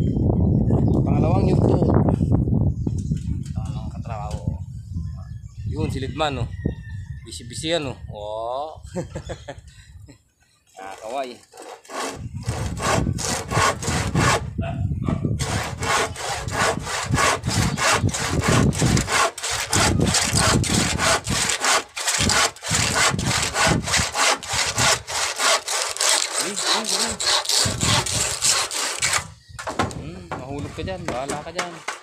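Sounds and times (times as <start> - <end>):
handsaw cutting wood: 10.8 - 14.5, 15.4 - 29.3.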